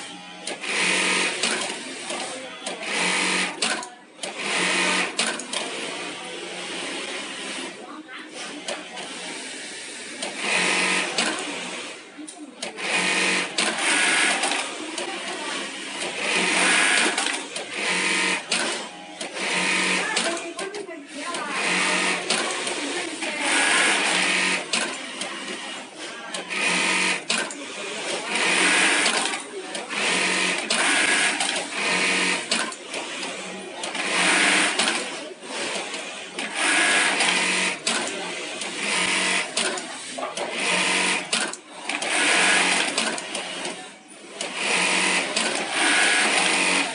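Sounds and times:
sewing machine stitching: 12.6s - 46.9s.

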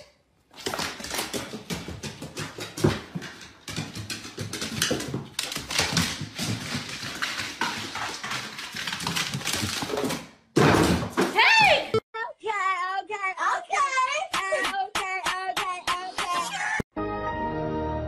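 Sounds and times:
dog claws clattering on wooden stairs: 0.6s - 10.2s.

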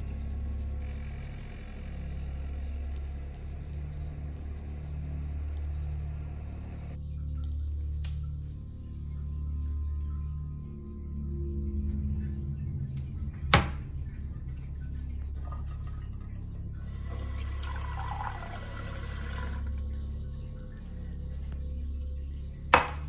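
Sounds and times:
water running from tap into glass: 15.4s - 16.2s, 16.9s - 19.8s.

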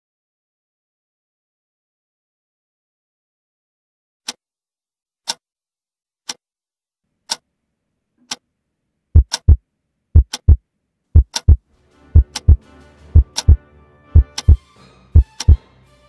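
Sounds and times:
clock ticking: 9.2s - 9.6s, 10.2s - 10.6s, 11.2s - 11.6s, 12.2s - 12.6s, 13.2s - 13.6s, 14.2s - 14.6s, 15.2s - 15.6s
heartbeat thumping: 9.2s - 9.6s, 10.2s - 10.6s, 11.2s - 11.6s, 12.2s - 12.6s, 13.2s - 13.6s, 14.2s - 14.6s, 15.2s - 15.6s.

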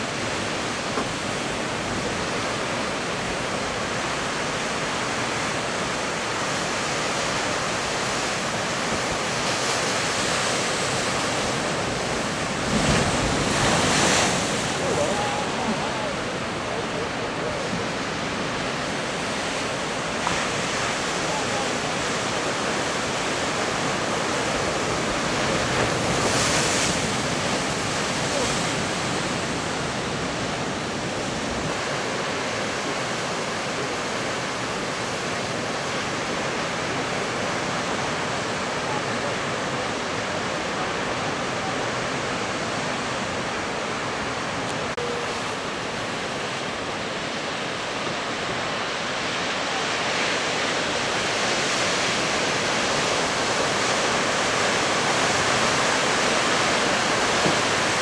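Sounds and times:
surf breaking on rocks: 6.8s - 33.7s.

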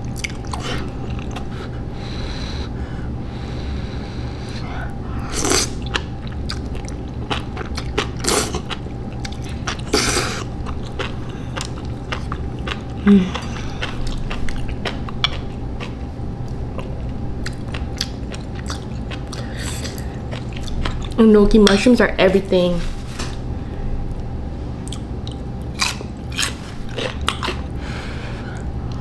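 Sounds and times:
wet chewing clicks and smacks: 0.0s - 1.5s, 5.8s - 21.2s, 24.8s - 27.7s.

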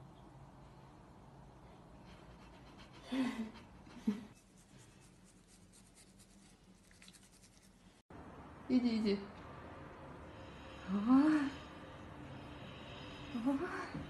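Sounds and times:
toothbrush scratching teeth: 4.3s - 7.9s.

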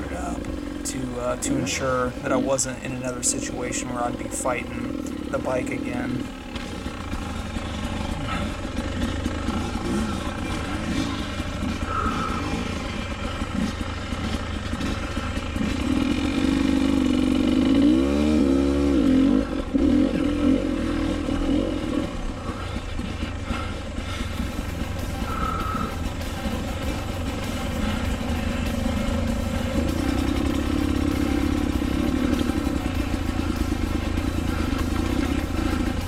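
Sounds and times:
dirt bike engine revving: 0.0s - 36.0s.

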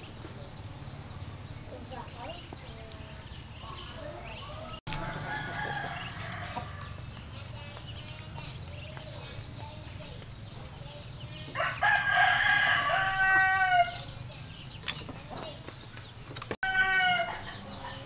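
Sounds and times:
chicken calls: 0.0s - 18.0s
rooster crowing: 4.4s - 7.0s, 11.6s - 14.1s, 16.6s - 18.0s.

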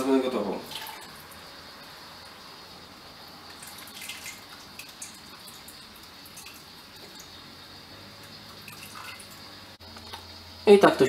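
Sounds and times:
water trickling onto grain: 0.6s - 1.5s, 3.4s - 9.8s.

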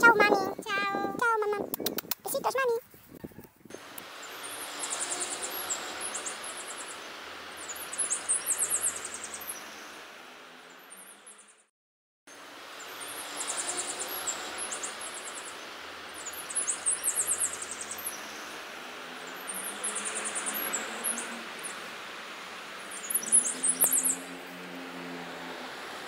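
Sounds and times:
steady hiss: 2.9s - 11.3s, 12.3s - 24.7s
high-pitched chirping trills: 3.7s - 9.8s, 12.8s - 18.5s, 22.8s - 24.4s.

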